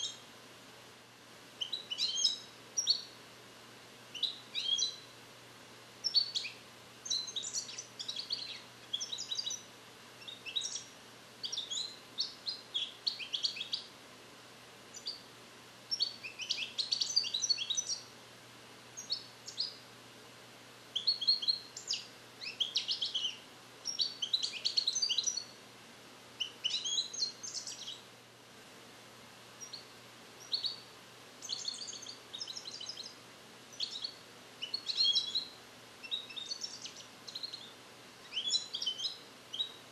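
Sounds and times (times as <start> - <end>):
goldfinch high chirping song: 0.0 - 0.3, 1.6 - 3.2, 4.1 - 5.1, 6.0 - 13.9, 14.9 - 15.3, 15.9 - 18.1, 19.0 - 19.8, 21.0 - 25.6, 26.4 - 28.1, 29.6 - 39.9.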